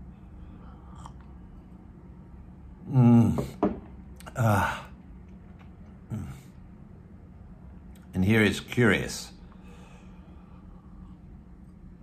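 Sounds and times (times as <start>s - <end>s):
man sighing aah: 2.9s - 3.6s, 4.2s - 5.0s.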